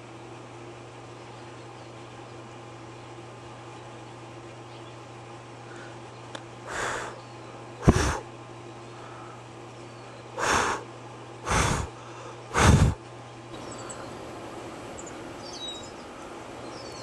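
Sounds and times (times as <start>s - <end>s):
steady low hum: 0.0s - 17.0s
small birds chirping: 0.9s - 17.0s
breath puffs on microphone: 7.8s - 8.3s, 11.5s - 13.0s.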